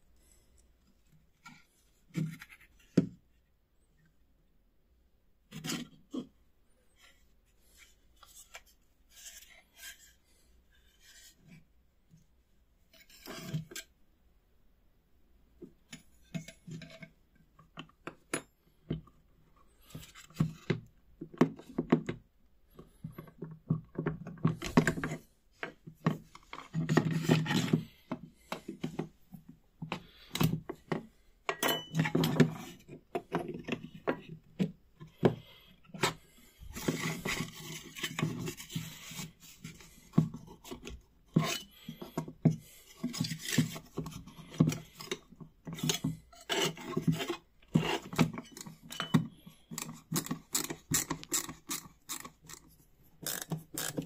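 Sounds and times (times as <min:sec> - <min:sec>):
metal scraper scraping wood: 0:13.0 - 0:13.9, 0:35.2 - 0:54.0.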